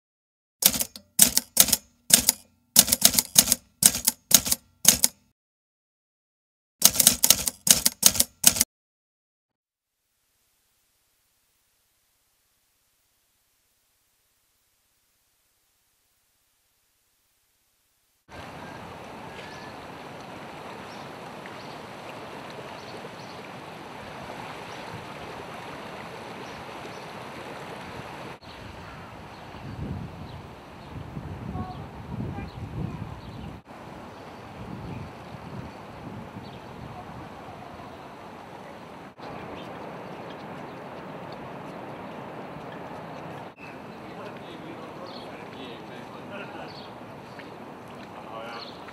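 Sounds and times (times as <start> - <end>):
typewriter keys clacking: 0.6 - 5.2, 6.8 - 8.7
wind: 0.6 - 5.3, 6.8 - 8.7, 10.6 - 48.9
rushing water: 18.3 - 32.2, 33.6 - 48.9.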